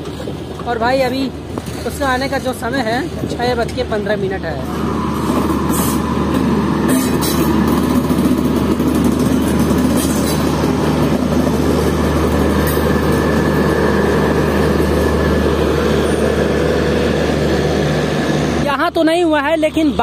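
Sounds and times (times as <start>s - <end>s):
train wheels rumbling on track: 0.0s - 20.0s
train clanks: 5.2s - 16.5s.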